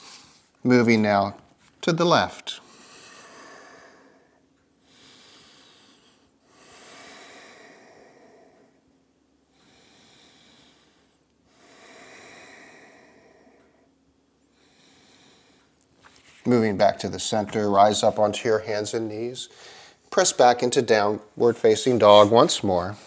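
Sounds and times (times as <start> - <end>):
man breathing slowly and deeply: 2.6 - 15.8, 17.8 - 20.1.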